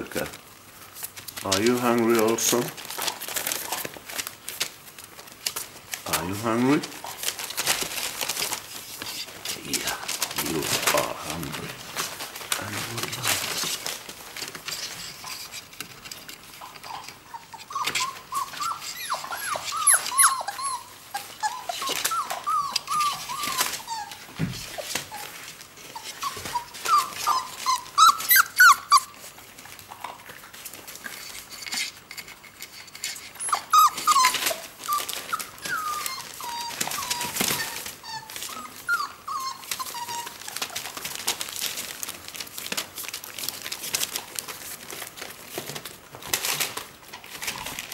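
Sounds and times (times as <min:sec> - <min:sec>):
newspaper rustling: 0:00.0 - 0:47.9
puppies whining: 0:05.0 - 0:15.7, 0:16.5 - 0:30.2, 0:32.6 - 0:44.2.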